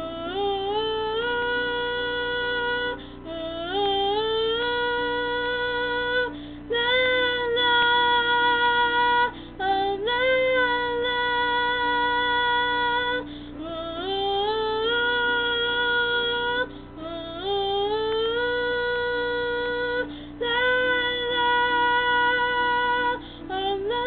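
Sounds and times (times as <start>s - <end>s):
girl singing wordless notes: 0.0s - 24.0s
girl breathing: 6.3s - 6.7s, 9.3s - 9.6s, 13.2s - 13.6s, 20.1s - 20.4s, 23.2s - 23.5s.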